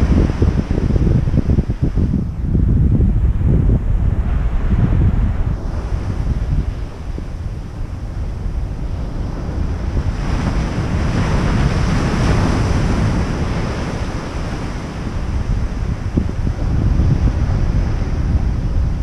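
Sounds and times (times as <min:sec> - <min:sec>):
wind buffeting microphone: 0:00.0 - 0:19.0
waves breaking on sand: 0:04.0 - 0:19.0.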